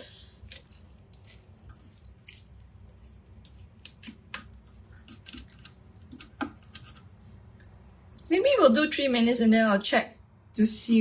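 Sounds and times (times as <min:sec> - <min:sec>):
squishy clicks of chopped onion: 0:00.4 - 0:07.2.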